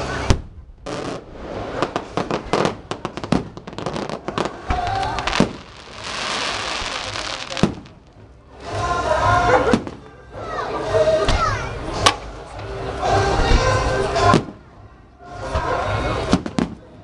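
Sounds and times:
fireworks crackling: 0:00.0 - 0:08.8
fireworks bangs: 0:00.1 - 0:08.3.

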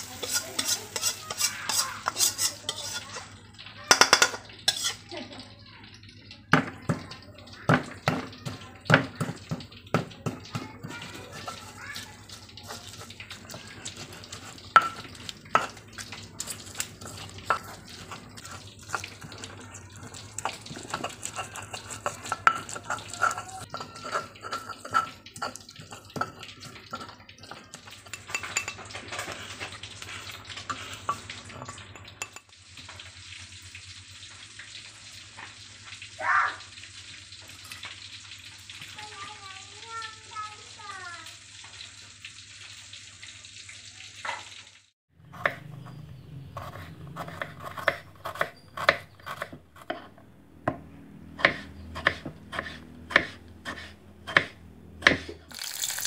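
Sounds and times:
pestle grinding and squelching: 0:00.0 - 0:03.2, 0:07.7 - 0:32.3, 0:45.3 - 0:56.0.

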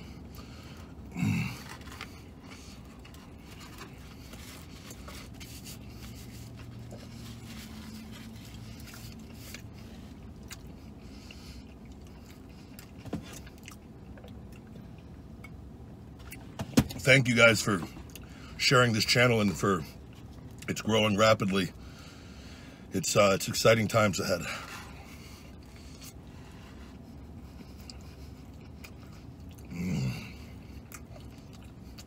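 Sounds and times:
man chewing food: 0:00.0 - 0:16.6, 0:24.6 - 0:32.0
low hum inside car: 0:00.0 - 0:32.0.

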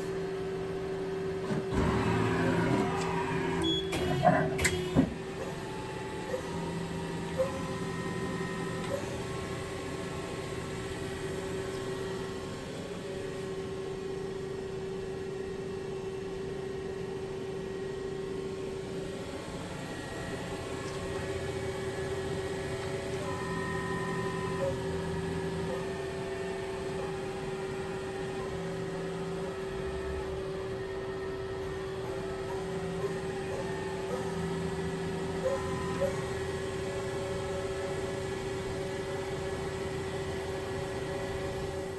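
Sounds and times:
lathe machine hum and whine: 0:00.0 - 0:41.9
higher machine tones: 0:17.9 - 0:41.9.

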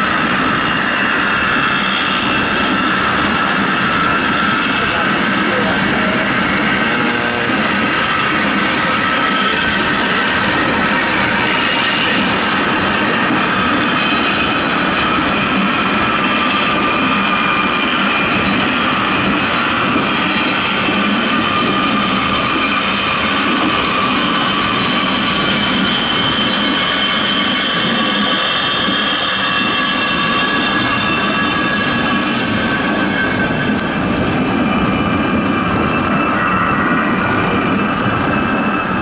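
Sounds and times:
steel wheels rumbling on rails: 0:00.0 - 0:39.0
high squealing tones: 0:19.7 - 0:39.0.

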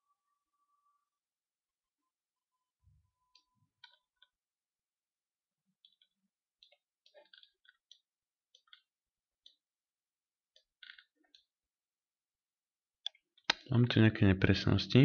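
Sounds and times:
computer mouse clicking: 0:05.8 - 0:09.6.

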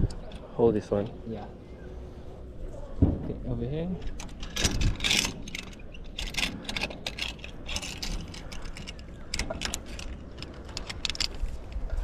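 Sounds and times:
metal harness clips clicking and rattling: 0:04.0 - 0:11.8.

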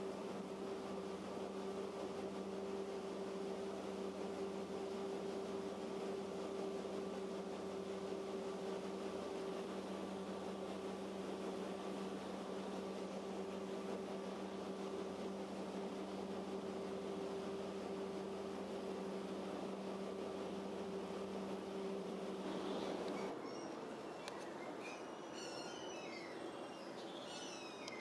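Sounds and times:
boat engine humming: 0:00.0 - 0:28.0.

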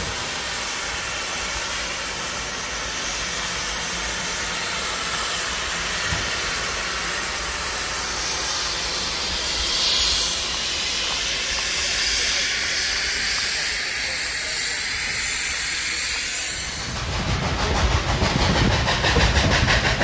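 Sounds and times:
steam locomotive hissing steam: 0:00.0 - 0:20.0.

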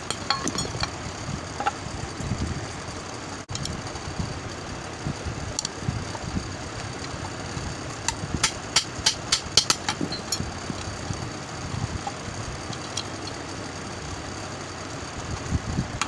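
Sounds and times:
metal rod tapping fan housing: 0:00.0 - 0:01.0, 0:08.0 - 0:10.9, 0:12.0 - 0:13.4
steady low rumble: 0:00.0 - 0:16.0.

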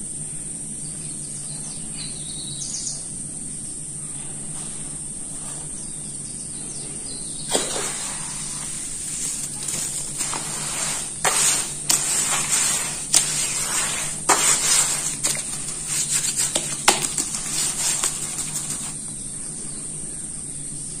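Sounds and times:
hands squelching wet dirt: 0:07.5 - 0:19.0.

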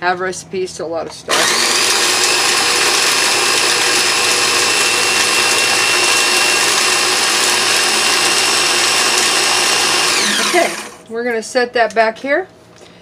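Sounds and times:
food processor grinding: 0:01.3 - 0:11.0.

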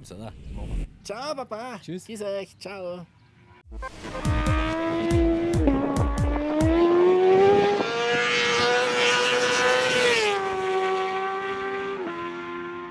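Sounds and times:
motorcycle engine whining: 0:03.8 - 0:12.0.

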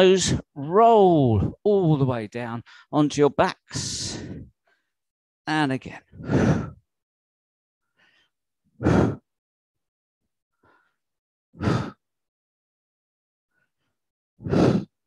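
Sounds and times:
man exhaling forcefully: 0:08.8 - 0:09.2, 0:11.6 - 0:12.0, 0:14.4 - 0:14.9.

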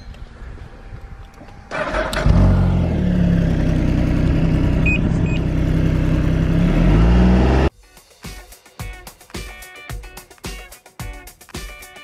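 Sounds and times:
snowmobile engine idling: 0:02.7 - 0:06.8.

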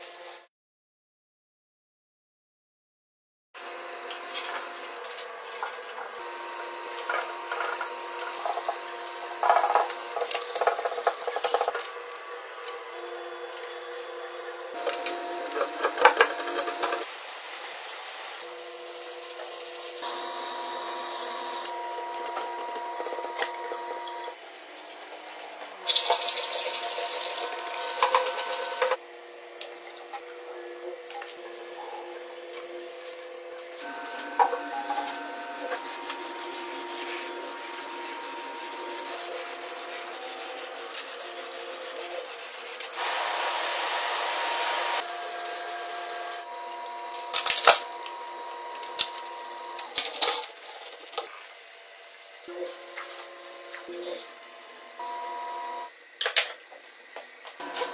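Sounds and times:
brush scrubbing metal: 0:34.9 - 0:43.7
loud hiss: 0:35.8 - 0:46.3.

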